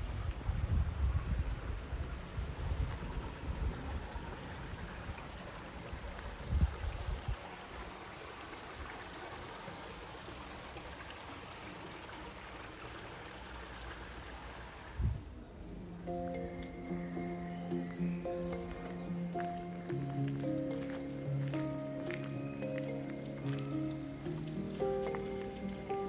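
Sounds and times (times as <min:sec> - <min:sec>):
wind rumbling on microphone: 0:00.0 - 0:07.8, 0:14.9 - 0:19.8
stream trickling over stones: 0:00.0 - 0:26.0.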